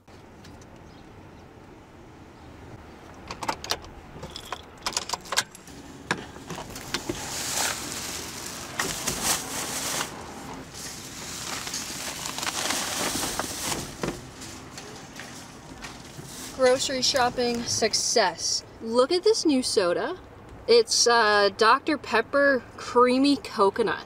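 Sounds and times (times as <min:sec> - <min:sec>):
plastic grocery bags rustling: 0:06.5 - 0:17.7.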